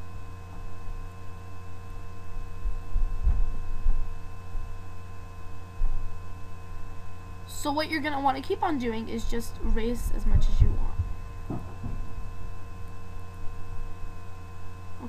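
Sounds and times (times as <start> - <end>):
electrical hum: 0.0 - 15.0
dull low thumps: 2.6 - 4.2, 9.8 - 12.8.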